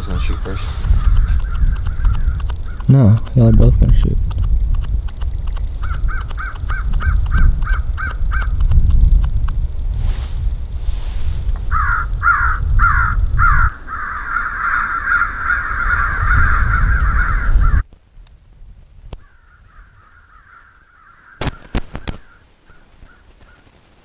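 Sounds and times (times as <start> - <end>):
electronic crow calls cawing: 0.2 - 2.9, 11.7 - 17.8, 19.2 - 23.6
low rumble: 8.6 - 13.7.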